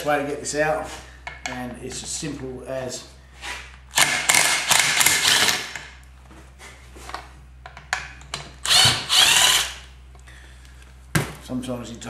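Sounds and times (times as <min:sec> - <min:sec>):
impact driver hammering: 0:03.9 - 0:06.0, 0:08.0 - 0:09.8.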